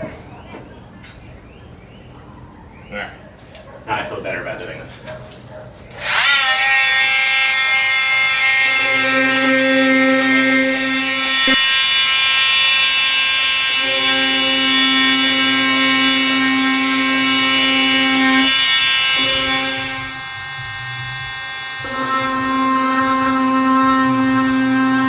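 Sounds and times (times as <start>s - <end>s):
lower buzz: 6.0s - 25.0s
oscillating tool high whine: 6.0s - 25.0s.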